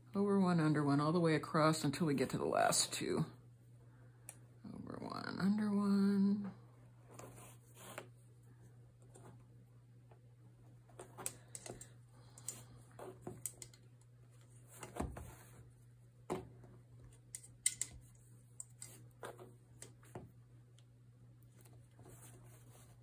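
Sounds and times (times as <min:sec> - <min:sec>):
faint low hum: 0:00.0 - 0:23.0
weaving hook clicks and rustles: 0:11.2 - 0:12.7, 0:17.2 - 0:19.1.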